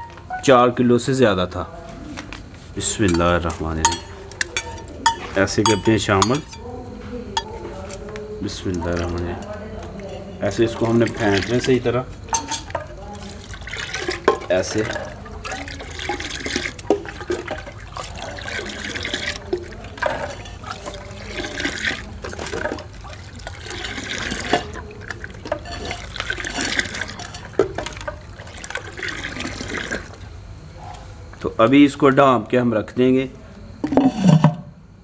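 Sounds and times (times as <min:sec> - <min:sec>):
milk pouring and splashing: 0:07.4 - 0:30.3.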